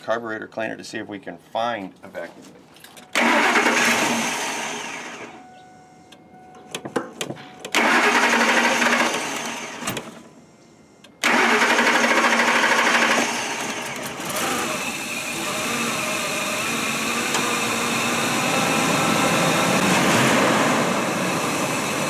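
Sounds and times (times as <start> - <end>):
engine cranking by starter: 3.0 - 5.4, 6.6 - 10.3, 11.2 - 22.0.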